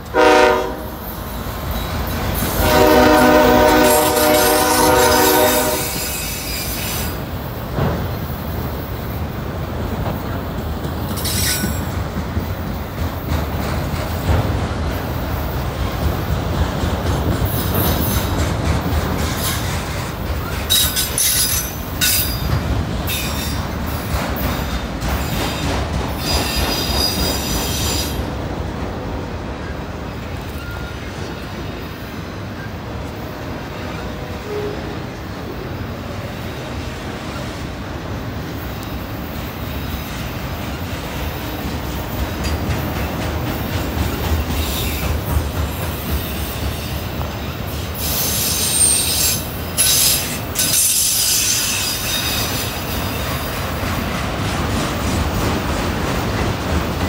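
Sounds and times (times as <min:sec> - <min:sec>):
train wheels rumbling on rail: 0:00.0 - 0:57.0
train wheels squealing: 0:03.8 - 0:07.3, 0:11.1 - 0:12.0, 0:17.4 - 0:18.4, 0:19.3 - 0:22.5, 0:23.1 - 0:28.3, 0:30.2 - 0:32.8, 0:44.1 - 0:53.6.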